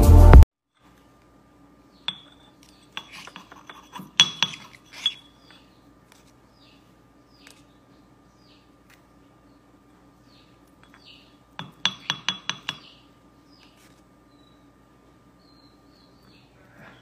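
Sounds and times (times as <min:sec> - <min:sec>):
clinking and scraping in ceramic mortar: 0:02.1 - 0:05.6.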